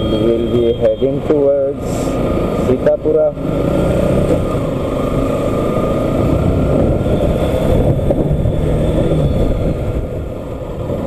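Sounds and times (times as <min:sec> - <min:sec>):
wind on microphone: 0:06.2 - 0:11.0.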